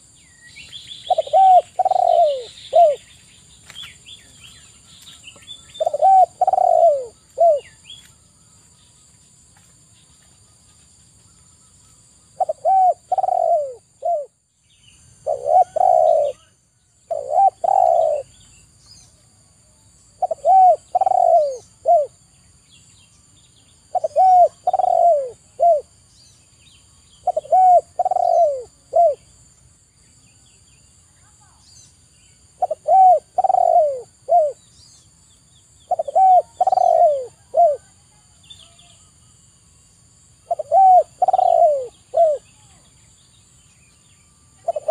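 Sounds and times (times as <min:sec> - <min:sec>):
dove cooing: 0:01.0 - 0:03.1, 0:05.6 - 0:07.8, 0:12.3 - 0:14.4, 0:15.2 - 0:16.5, 0:17.1 - 0:18.4, 0:20.2 - 0:22.2, 0:23.9 - 0:25.9, 0:27.2 - 0:29.3, 0:32.6 - 0:34.7, 0:35.9 - 0:38.0, 0:40.4 - 0:42.6, 0:44.6 - 0:44.9.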